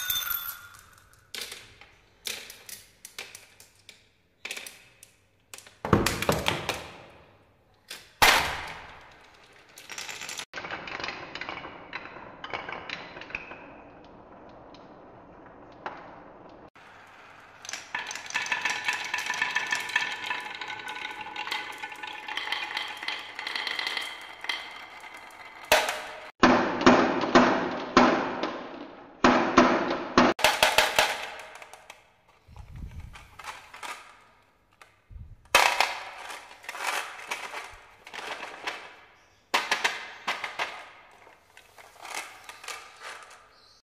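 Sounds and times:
marbles clattering on wooden tracks: 0:00.0 - 0:07.1, 0:07.9 - 0:26.3, 0:30.3 - 0:43.8
marbles falling into plastic truck: 0:07.9 - 0:26.3, 0:30.4 - 0:43.8.

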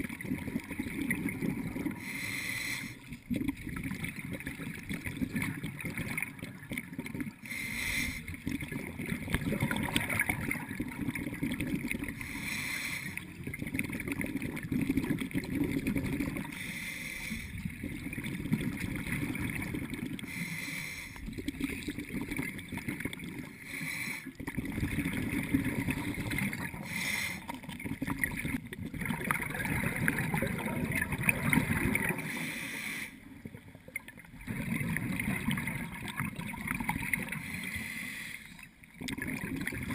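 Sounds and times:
exhaled bubbles rushing: 0:00.0 - 0:02.2, 0:03.0 - 0:07.5, 0:08.2 - 0:12.4, 0:13.1 - 0:16.6, 0:17.5 - 0:20.3, 0:21.2 - 0:23.6, 0:24.4 - 0:32.4, 0:33.3 - 0:37.6, 0:38.8 - 0:39.9
regulator inhalation hiss: 0:02.0 - 0:03.0, 0:07.4 - 0:08.3, 0:12.2 - 0:13.2, 0:16.5 - 0:17.6, 0:20.3 - 0:21.2, 0:26.8 - 0:27.5, 0:32.2 - 0:33.2, 0:37.4 - 0:38.5.

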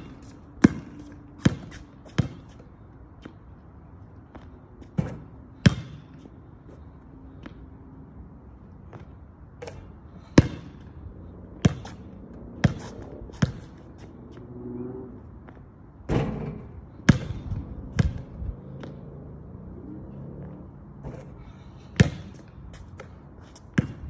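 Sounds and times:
basketball bouncing on hard court: 0:00.6 - 0:02.6, 0:05.0 - 0:06.1, 0:10.4 - 0:10.8, 0:11.6 - 0:12.0, 0:12.6 - 0:13.8, 0:17.0 - 0:19.0, 0:22.0 - 0:22.4, 0:23.7 - 0:24.0.

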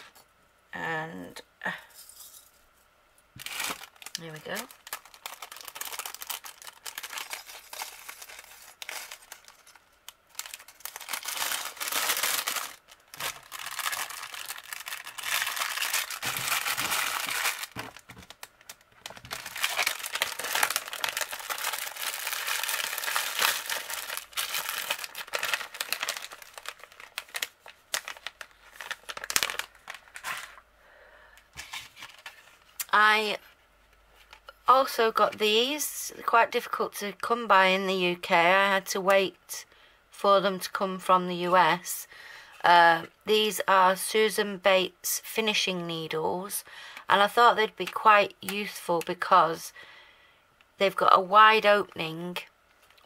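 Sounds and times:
plastic bags crinkling: 0:03.4 - 0:30.7, 0:31.5 - 0:32.8.

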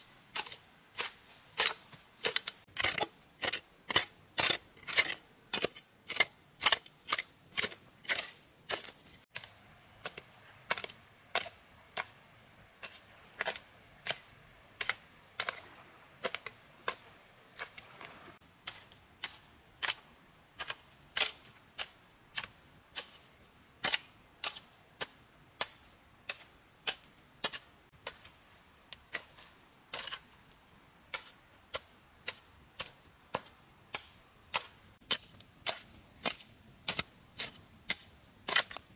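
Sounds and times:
hand tool striking wood: 0:00.3 - 0:12.1, 0:14.8 - 0:20.0, 0:31.1 - 0:38.9.

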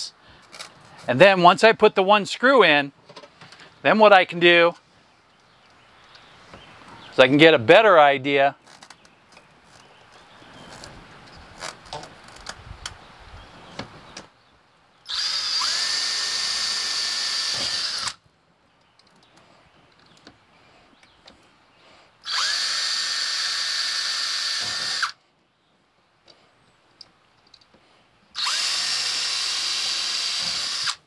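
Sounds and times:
cordless drill spinning: 0:15.1 - 0:18.2, 0:22.2 - 0:25.2, 0:28.4 - 0:31.0.

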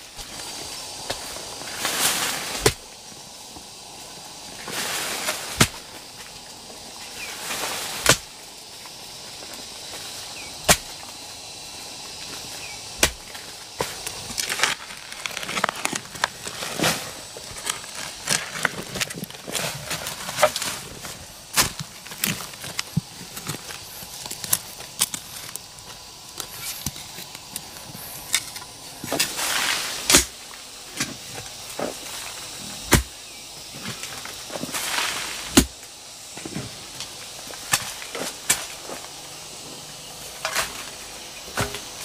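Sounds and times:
soil rustling and scraping: 0:00.0 - 0:42.0
digging tool striking soil: 0:02.4 - 0:02.8, 0:05.2 - 0:05.9, 0:07.9 - 0:08.4, 0:10.4 - 0:11.1, 0:12.6 - 0:25.6, 0:28.3 - 0:30.4, 0:32.9 - 0:33.1, 0:34.8 - 0:35.8, 0:37.6 - 0:38.8.

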